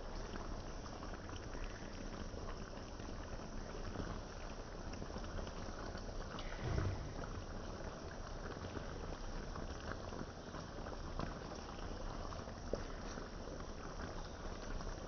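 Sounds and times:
sauce bubbling in a pan: 0.0 - 15.0
low bump: 6.4 - 7.8.

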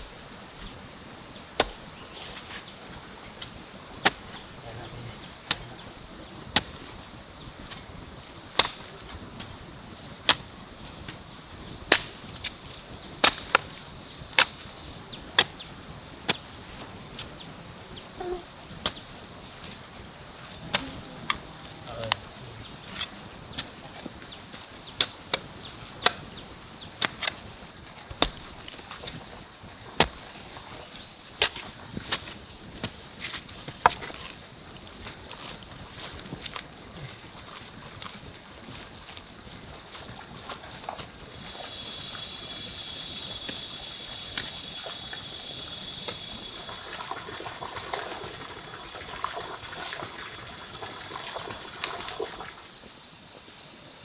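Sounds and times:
hoe chopping stony soil: 0.0 - 2.7, 3.3 - 4.5, 5.3 - 16.5, 18.8 - 21.5, 22.9 - 34.4
insects humming: 0.0 - 54.0.

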